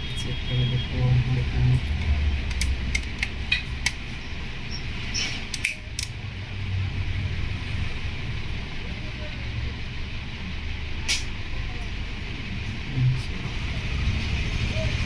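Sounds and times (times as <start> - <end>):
plastic clips snapping: 2.0 - 4.0.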